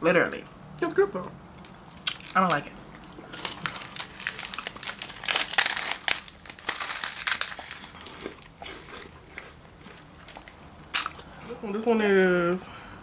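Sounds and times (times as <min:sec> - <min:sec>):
snack wrappers crinkling: 0:01.6 - 0:11.3.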